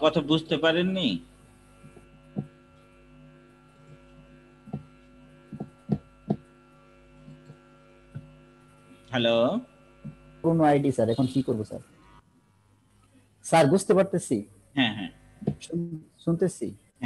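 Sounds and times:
steady electrical hum: 0.0 - 17.0
soft knocks or clicks: 5.5 - 6.4.

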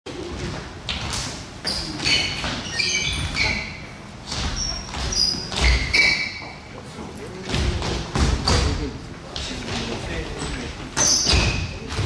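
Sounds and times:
sneakers squeaking on floor: 0.3 - 6.8, 9.4 - 12.0.

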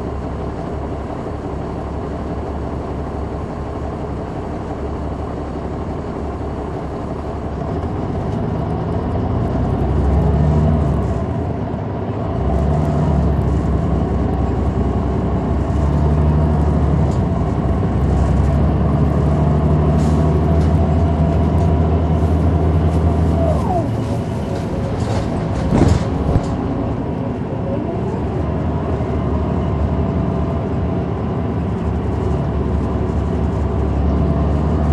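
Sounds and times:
bus diesel engine hum: 0.0 - 34.9.

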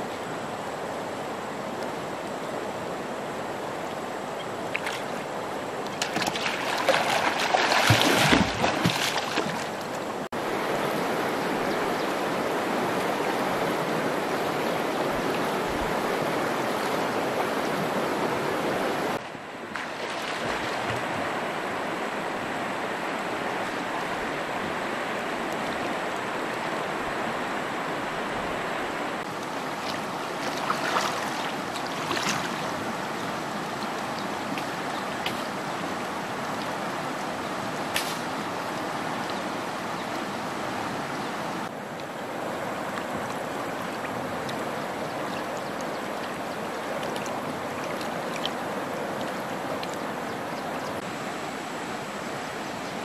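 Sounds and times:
river rushing over stones: 0.0 - 53.0
splashes of wading in water: 4.6 - 10.3, 19.7 - 21.4, 29.2 - 36.6, 42.7 - 51.0.

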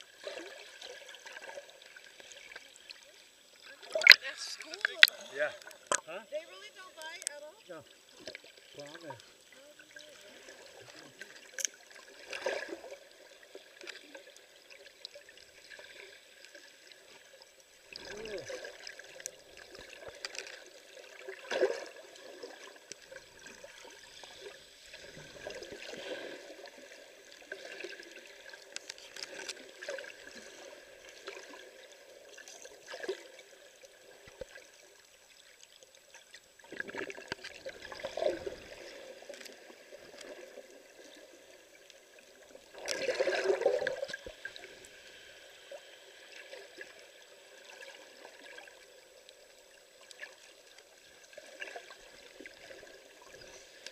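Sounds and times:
water swishing and gurgling: 0.0 - 53.9
muffled underwater noise: 3.6 - 11.6, 17.9 - 19.1.

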